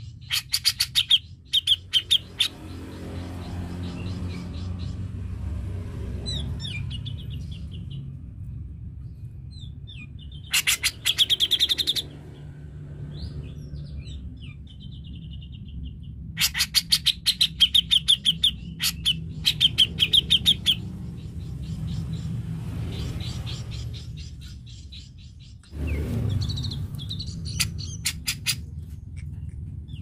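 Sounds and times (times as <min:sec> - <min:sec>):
harsh rattling bird chatter: 0:00.0 - 0:05.2, 0:10.2 - 0:12.5, 0:14.8 - 0:30.0
steady low rumble: 0:00.0 - 0:30.0.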